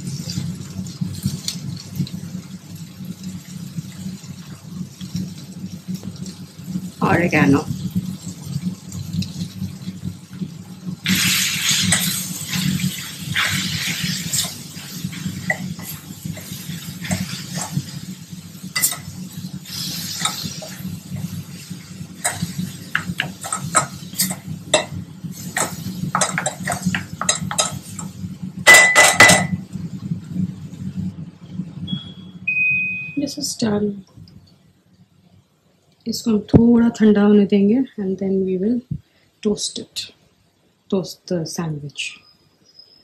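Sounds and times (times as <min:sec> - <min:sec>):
steady low hum: 0:00.0 - 0:43.0
metal spoon scraping metal vessel: 0:18.8 - 0:19.1.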